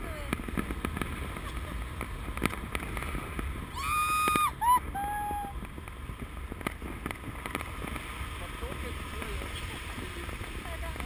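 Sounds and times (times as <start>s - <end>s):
fireworks popping: 0.0s - 11.0s
wind noise on microphone: 0.0s - 11.0s
firework whistle: 3.7s - 5.6s.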